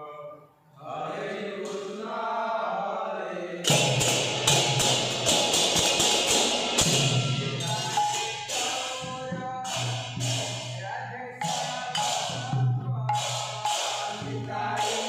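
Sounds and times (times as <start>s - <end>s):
men chanting in unison: 0.0s - 5.3s, 6.9s - 15.0s
brass hand cymbals clashing: 3.7s - 10.8s, 11.4s - 15.0s.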